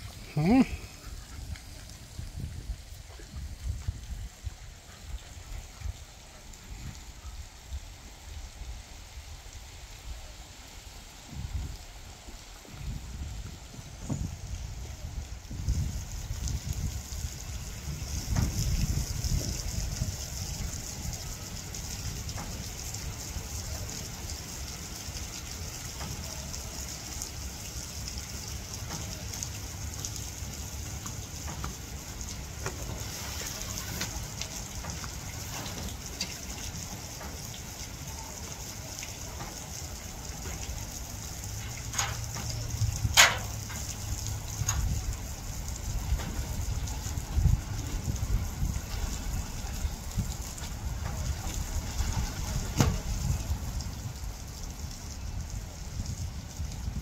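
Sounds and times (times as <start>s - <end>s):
wind rumble on microphone: 0.0s - 24.8s, 40.2s - 57.0s
dogs splashing in water: 21.7s - 47.7s.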